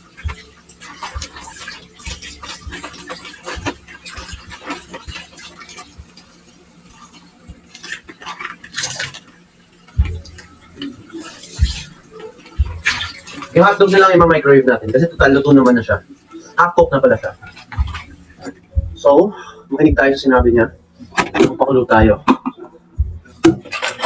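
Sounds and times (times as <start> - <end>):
heavy thump: 18.8 - 19.0, 23.0 - 23.6
pan and utensils clinking: 23.4 - 24.0.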